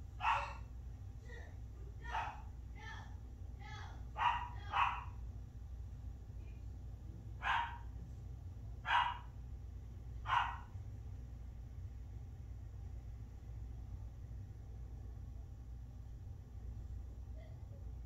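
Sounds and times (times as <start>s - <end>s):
steady low hum: 0.0s - 18.0s
dog barking: 0.2s - 0.7s, 2.1s - 2.5s, 4.2s - 5.2s, 7.4s - 7.9s, 8.8s - 9.3s, 10.2s - 10.7s.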